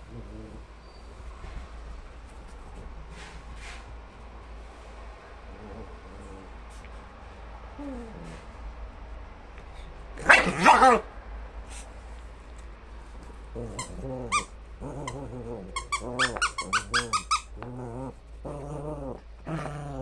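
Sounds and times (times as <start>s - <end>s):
small dog growling: 0.0s - 0.7s, 5.5s - 6.8s, 7.8s - 8.5s, 13.2s - 20.0s.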